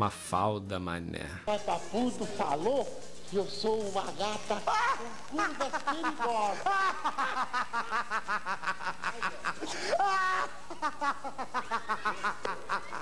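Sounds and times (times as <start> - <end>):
people laughing high-pitched: 4.2 - 13.0.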